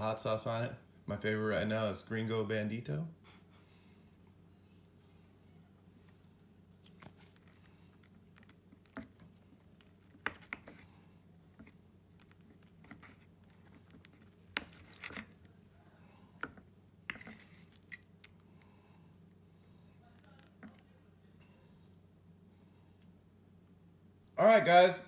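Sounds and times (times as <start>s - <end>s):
faint low hum: 0.0s - 25.0s
fork scraping on plate: 12.6s - 15.4s, 17.1s - 18.0s.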